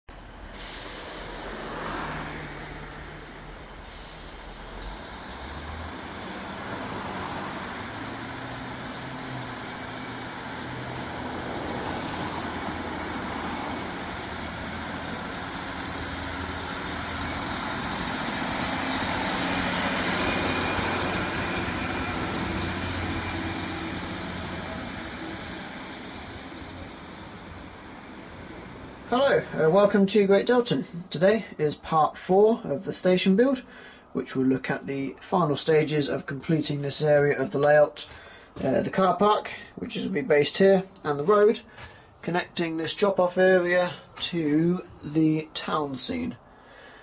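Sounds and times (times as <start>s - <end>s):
diesel railcar engine running: 0.1s - 29.7s
brief hiss: 0.5s - 5.4s.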